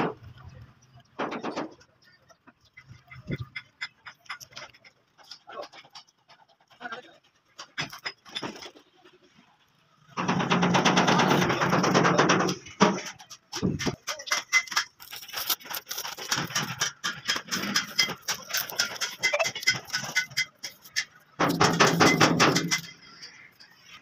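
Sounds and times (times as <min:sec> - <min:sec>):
masking tape peeling crackles: 0:15.0 - 0:16.7.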